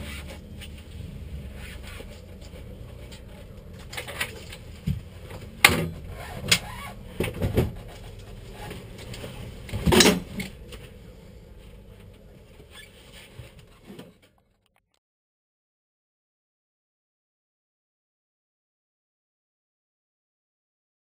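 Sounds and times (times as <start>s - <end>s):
low steady rumble: 0.0s - 14.8s
knocks and bumps inside car cabin: 4.7s - 10.8s.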